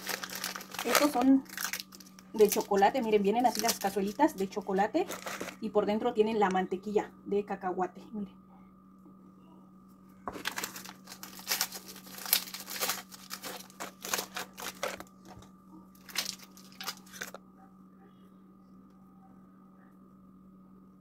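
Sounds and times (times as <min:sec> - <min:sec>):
packaging crinkling: 0:00.0 - 0:04.4, 0:05.0 - 0:05.6, 0:10.3 - 0:17.4
steady low hum: 0:00.0 - 0:21.0.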